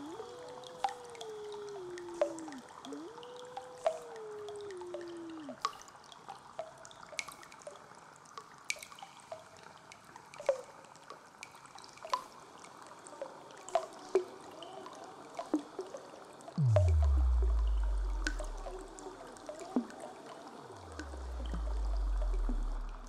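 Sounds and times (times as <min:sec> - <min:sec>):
water dripping: 0:00.0 - 0:10.7, 0:16.6 - 0:23.0
faint steady hiss: 0:00.0 - 0:23.0.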